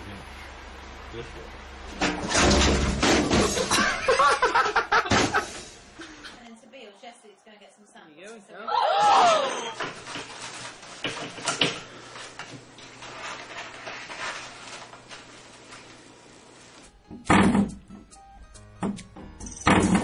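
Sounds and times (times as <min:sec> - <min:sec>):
toilet paper rustling: 0:09.8 - 0:16.8
paper roll rattling on metal holder: 0:12.9 - 0:15.4.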